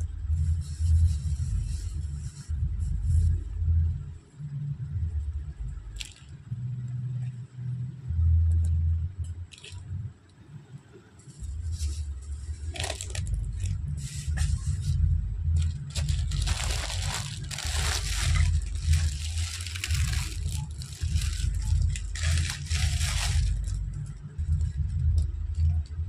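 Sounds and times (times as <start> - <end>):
rumble buffeting microphone: 0.0 - 26.0
packet crinkling: 12.7 - 14.5, 15.6 - 24.6.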